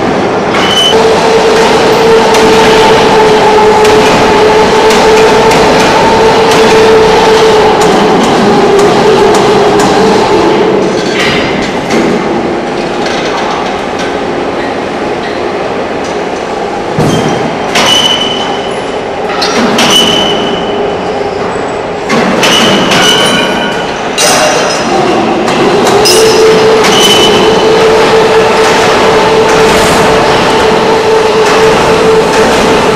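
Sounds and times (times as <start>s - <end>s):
short high metal squeal: 0.6s - 1.0s
steel clanks: 22.1s - 24.9s.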